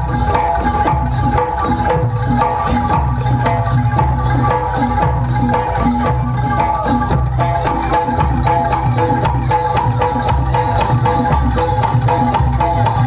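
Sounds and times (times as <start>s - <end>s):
gongs and metallophones: 0.0s - 13.0s
hand drums: 0.0s - 13.0s.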